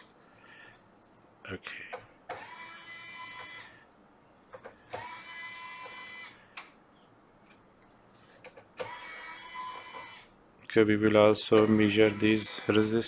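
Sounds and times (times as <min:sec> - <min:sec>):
small electric motor whining: 0:02.3 - 0:03.9, 0:04.9 - 0:06.5, 0:08.8 - 0:10.3, 0:11.6 - 0:13.0.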